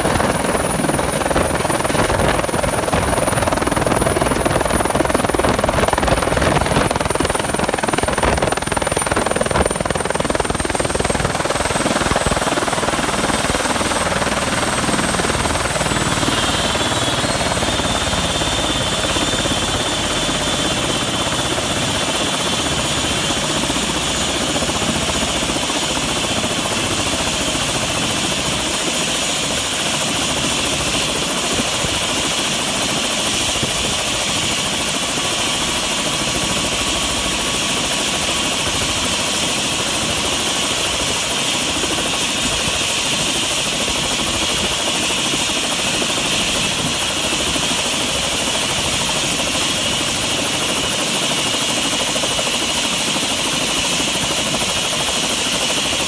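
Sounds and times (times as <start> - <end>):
helicopter rotor wash: 0.0 - 56.0
helicopter turbine whine: 0.0 - 56.0.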